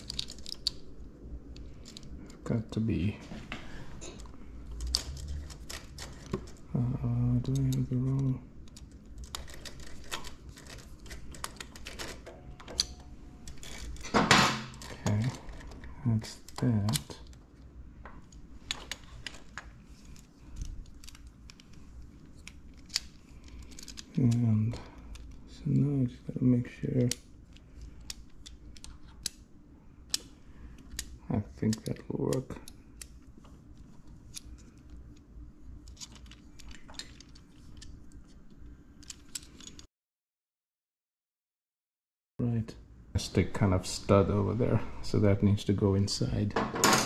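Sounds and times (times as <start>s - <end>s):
metal parts clicking and tapping: 0.0s - 0.8s
small metal parts clicking: 0.0s - 0.9s, 4.7s - 6.6s, 18.3s - 24.4s.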